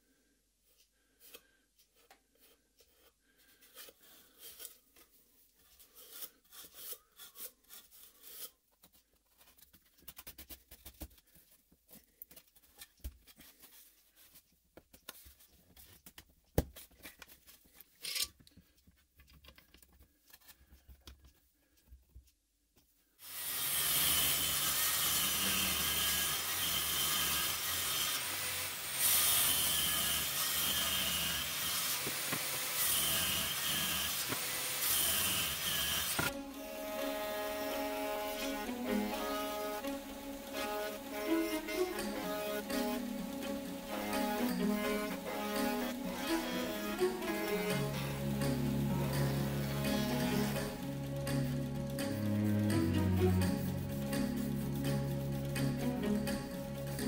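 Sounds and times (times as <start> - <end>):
table saw running: 23.2 - 57.0.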